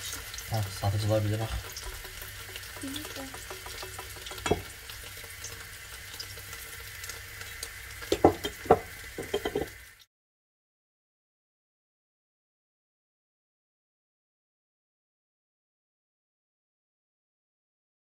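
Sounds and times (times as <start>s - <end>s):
cheese sizzling in hot oil: 0.0s - 10.1s.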